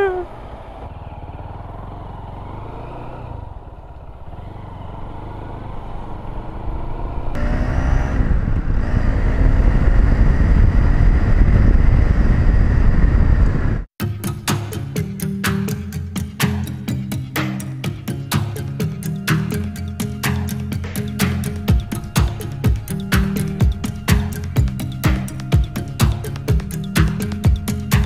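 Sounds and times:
motorcycle engine accelerating: 0.0 - 13.9
wind rushing over microphone: 6.4 - 13.9.

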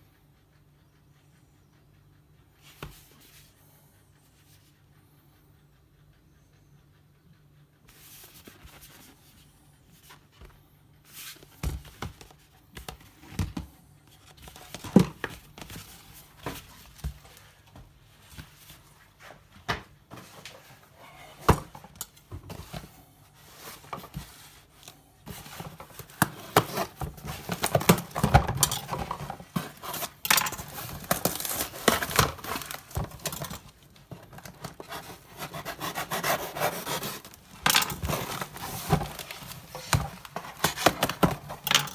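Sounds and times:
cardboard tearing and crinkling: 26.1 - 41.6.

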